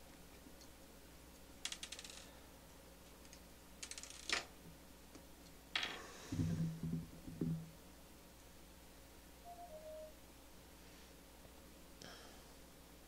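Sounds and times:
dull handling knocks: 6.3s - 7.7s.

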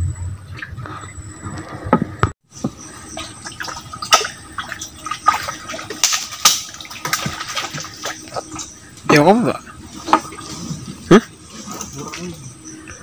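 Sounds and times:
water splashing from wading: 2.6s - 12.4s.

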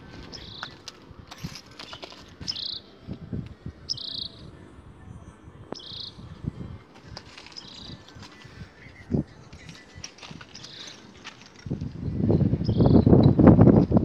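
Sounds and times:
bird chirping: 0.1s - 1.0s, 1.7s - 2.9s, 3.8s - 4.6s, 5.7s - 6.3s, 7.3s - 11.4s, 12.0s - 13.6s.

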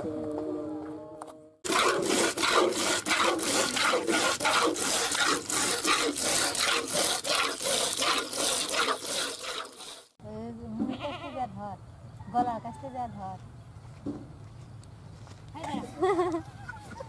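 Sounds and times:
milk squirting into bucket: 1.7s - 10.1s.

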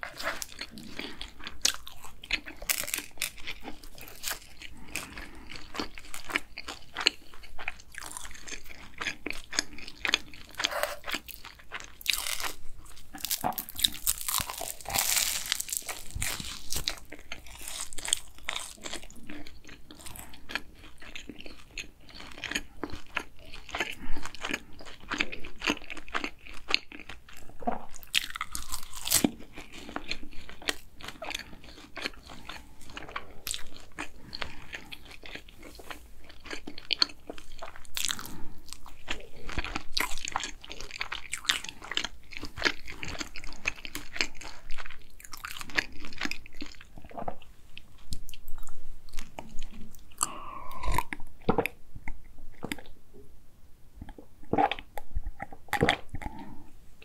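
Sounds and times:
close-miked chewing: 0.0s - 53.0s, 54.0s - 56.8s
crisp pastry crackling: 1.4s - 20.1s.

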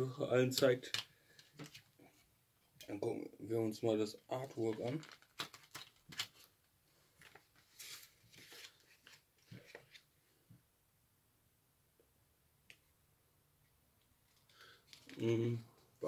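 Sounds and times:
paper rustling: 4.4s - 10.1s, 14.3s - 15.3s.

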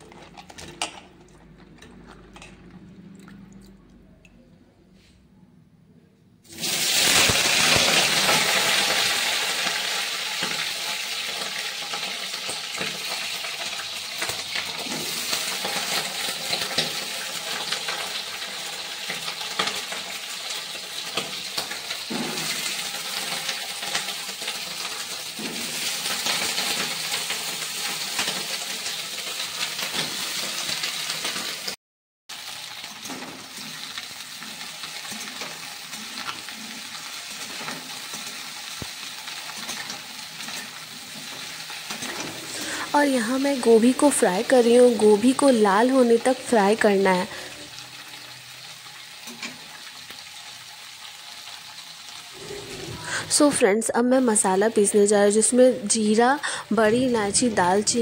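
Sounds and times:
vegetables sizzling in hot oil: 6.5s - 58.0s
metal spatula scraping a pan: 32.6s - 42.9s, 52.4s - 53.6s.

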